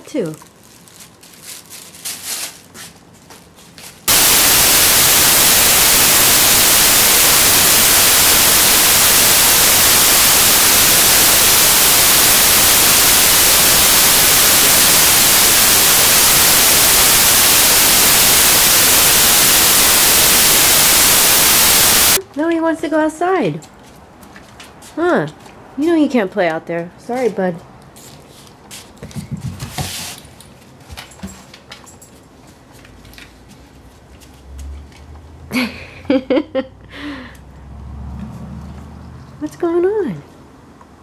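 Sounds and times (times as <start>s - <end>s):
plastic bag crinkling: 0.2s - 4.1s
loud static hiss: 4.0s - 22.2s.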